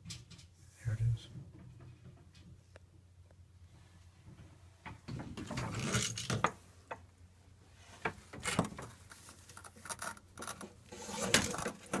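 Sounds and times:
rubbing and scraping handling noise: 0:03.7 - 0:06.7, 0:07.6 - 0:12.0.

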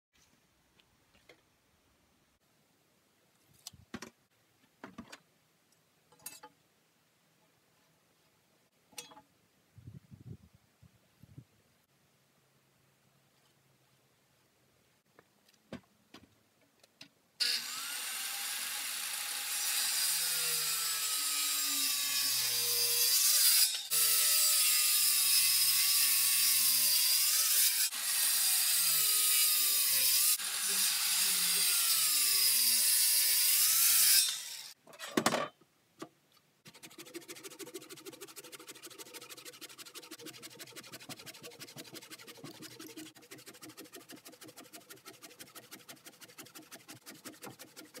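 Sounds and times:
circular saw cutting wood: 0:17.4 - 0:34.8, 0:36.6 - 0:48.0.

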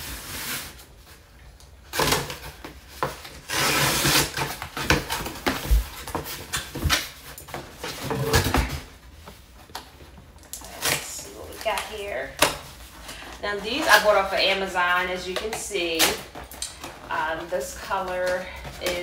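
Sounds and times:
cardboard scraping and rubbing: 0:03.0 - 0:08.9.

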